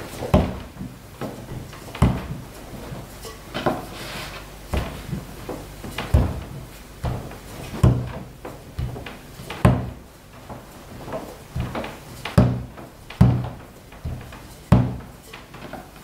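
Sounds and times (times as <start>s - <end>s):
rolling pin knocking on board: 0.2s - 2.5s, 4.7s - 15.2s.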